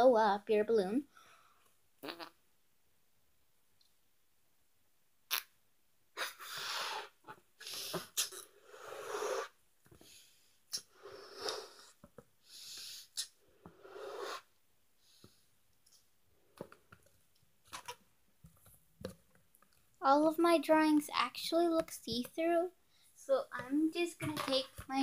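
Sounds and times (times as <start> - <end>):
breaths blowing up balloon: 6.2 - 15.4.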